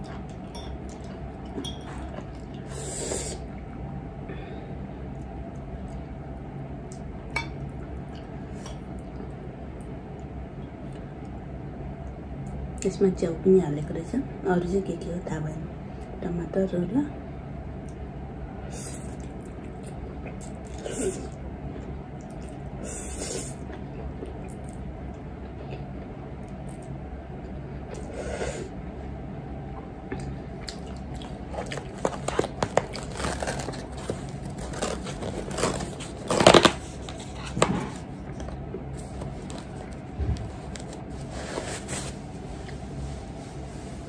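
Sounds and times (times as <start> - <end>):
low room hum: 0.0 - 44.0
handling crinkling and scraping: 31.5 - 44.0.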